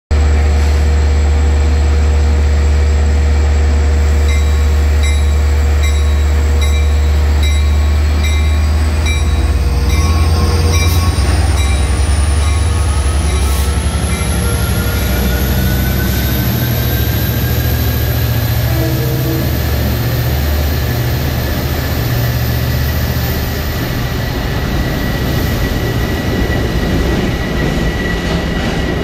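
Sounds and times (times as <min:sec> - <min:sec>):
diesel locomotive rumbling: 0:00.1 - 0:29.0
rising high whine: 0:01.4 - 0:26.9.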